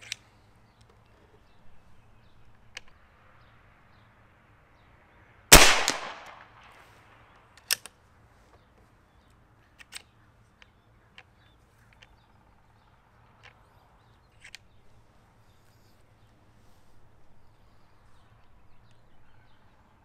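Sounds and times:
rifle bolt click: 5.5s - 6.4s
air rifle shot: 5.5s - 6.8s.

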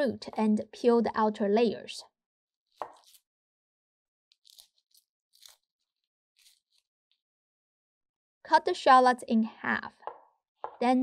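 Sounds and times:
knife cutting shallot: 2.7s - 3.3s, 4.3s - 5.8s, 6.4s - 6.9s
crackling of peeled shallot skin: 2.7s - 3.4s, 4.3s - 7.2s.

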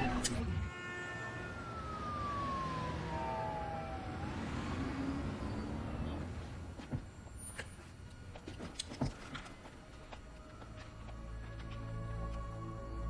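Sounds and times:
siren wailing: 0.0s - 7.2s
street traffic hum: 0.0s - 13.0s.

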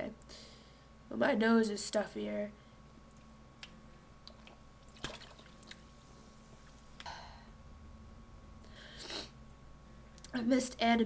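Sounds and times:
soft breath: 0.3s - 1.0s.

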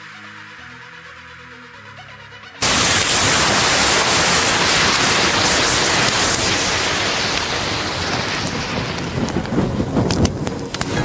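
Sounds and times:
matchsticks burning with hiss: 2.6s - 11.0s.

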